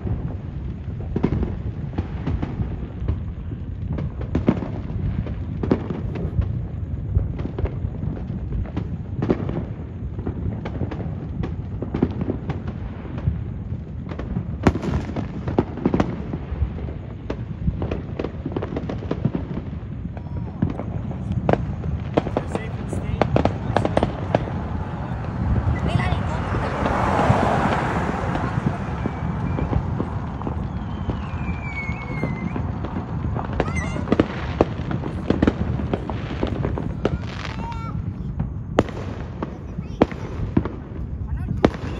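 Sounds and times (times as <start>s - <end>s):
fireworks bangs and pops: 0.0s - 41.9s
low rumble: 16.2s - 39.5s
high falling whistle: 28.8s - 32.8s.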